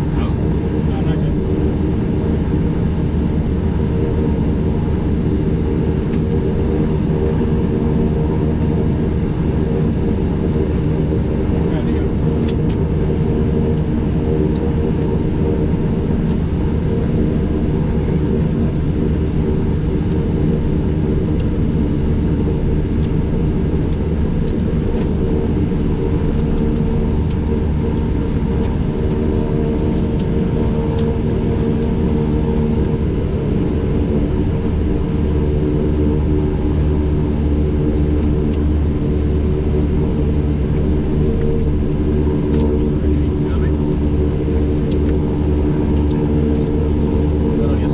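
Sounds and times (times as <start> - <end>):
turboprop engines droning: 0.0 - 47.9.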